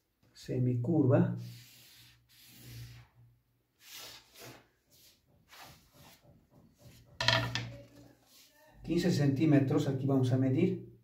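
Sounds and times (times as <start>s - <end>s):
marker scratching on paper: 1.4s - 3.2s, 3.8s - 6.2s, 8.1s - 8.6s
wooden ruler being moved: 6.9s - 8.5s.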